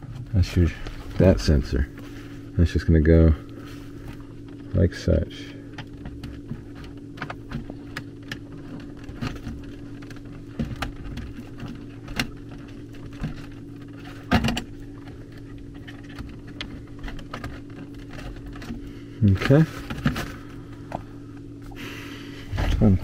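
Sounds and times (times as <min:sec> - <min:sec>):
steady low hum: 0:00.0 - 0:23.0
wire clicks and rattles: 0:05.7 - 0:21.5.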